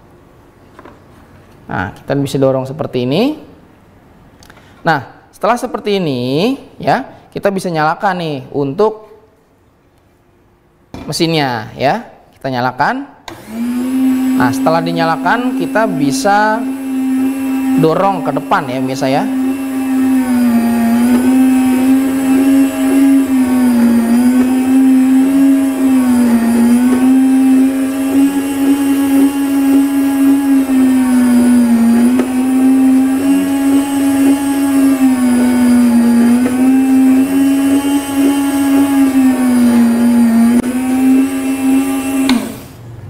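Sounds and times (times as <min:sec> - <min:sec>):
meat slicer motor humming: 0:13.3 - 0:42.8.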